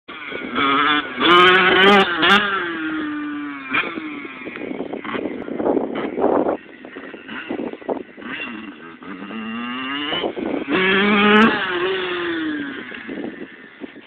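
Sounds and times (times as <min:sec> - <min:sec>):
dirt bike engine revving: 0:00.1 - 0:14.0.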